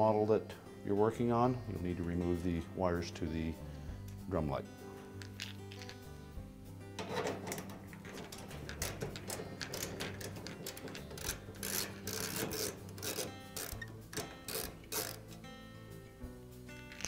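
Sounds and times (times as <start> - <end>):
metal rattling: 6.8 - 15.5
metal scraping: 6.8 - 15.5
tool clicking in metal cabinet: 7.0 - 15.4.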